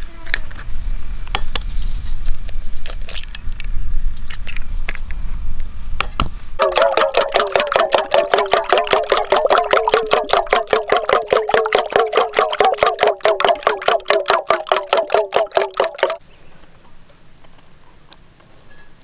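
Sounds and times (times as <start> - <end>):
eggs cracked against metal bowl: 6.6 - 16.2
fork beating eggs in metal bowl: 6.6 - 16.2.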